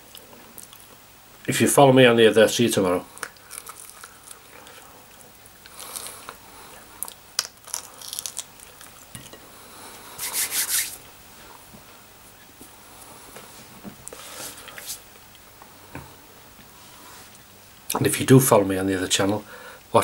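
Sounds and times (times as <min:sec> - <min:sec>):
breathy hiss: 0:02.7 - 0:07.1, 0:09.3 - 0:11.7, 0:12.7 - 0:15.1, 0:19.4 - 0:20.0
person chewing meat: 0:03.1 - 0:09.4.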